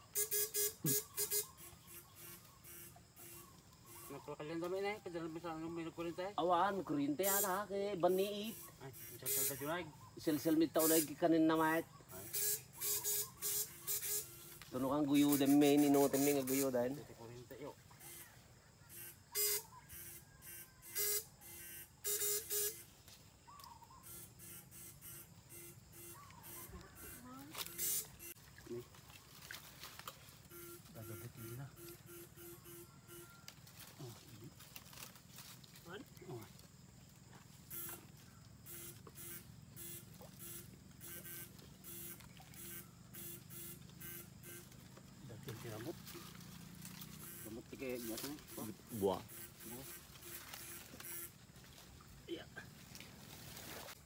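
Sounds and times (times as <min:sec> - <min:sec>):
buzzing hissing pulses: 0:00.0 - 0:04.2
electric fishing shocker buzzing: 0:00.0 - 0:04.3, 0:07.1 - 0:09.8, 0:10.5 - 0:17.0, 0:18.0 - 0:23.0, 0:24.0 - 0:28.4, 0:30.4 - 0:33.4, 0:37.7 - 0:44.9, 0:45.6 - 0:51.5
faint electric pulse: 0:18.9 - 0:22.9, 0:24.0 - 0:28.4.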